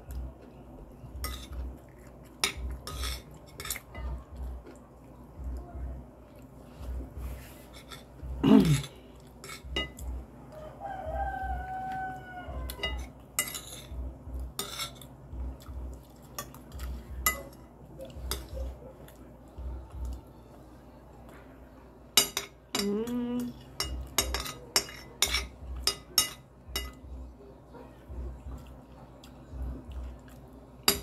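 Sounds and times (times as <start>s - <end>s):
cutlery scraping plates: 1.2s - 1.6s, 2.4s - 3.9s, 7.4s - 10.0s, 12.8s - 15.1s, 23.8s - 27.0s
rooster crowing: 10.5s - 13.1s.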